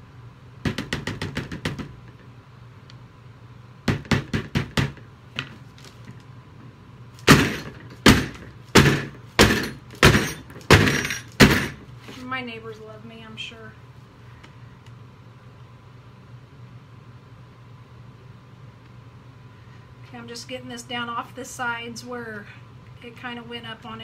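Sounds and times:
box banged on a tabletop: 0.6s - 2.0s, 3.9s - 5.6s, 7.3s - 11.8s.

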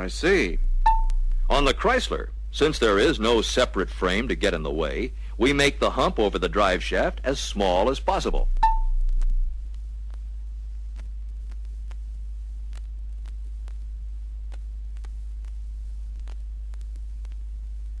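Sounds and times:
faint hiss: 0.0s - 8.5s
low hum: 0.0s - 18.0s
record clicks and crackles: 0.0s - 18.0s.

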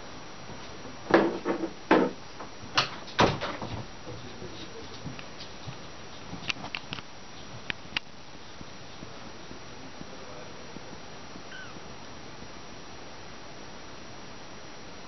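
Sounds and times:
knocks and thumps: 1.1s - 4.4s.

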